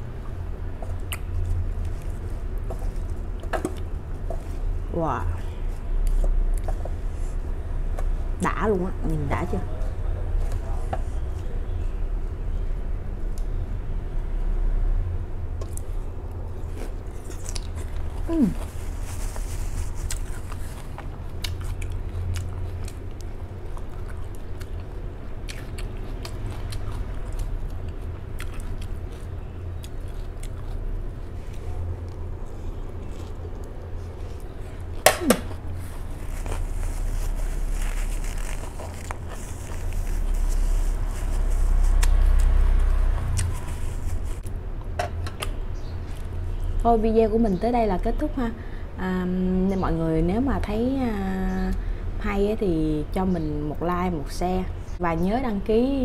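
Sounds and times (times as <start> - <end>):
steady low rumble: 0.0 - 56.0
chewing crisp lettuce: 0.2 - 6.8, 15.6 - 44.6.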